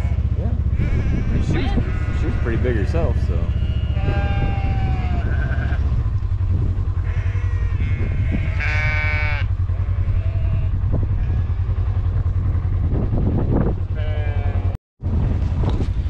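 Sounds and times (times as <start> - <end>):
sheep bleating: 0.0 - 6.0, 7.0 - 11.9, 13.9 - 14.8
vehicle engine idling: 0.0 - 16.0.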